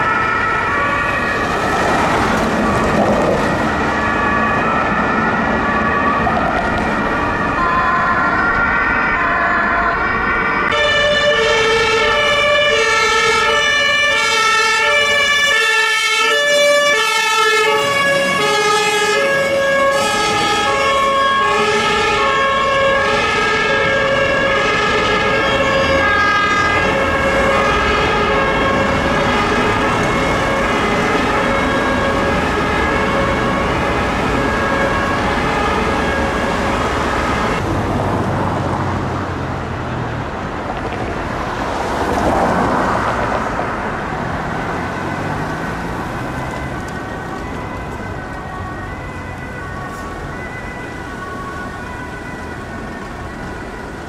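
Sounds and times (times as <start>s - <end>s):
two-tone fire engine siren: 0.0s - 41.0s, 41.6s - 54.0s
vehicle driving past: 41.5s - 46.8s.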